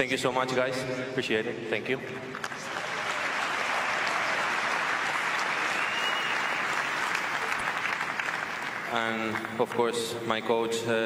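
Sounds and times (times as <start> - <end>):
large crowd applauding: 2.3 - 10.4.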